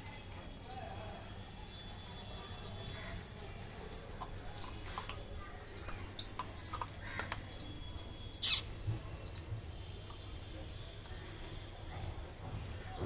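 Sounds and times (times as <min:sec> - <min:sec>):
puppy crunching kibble: 0:03.0 - 0:10.4.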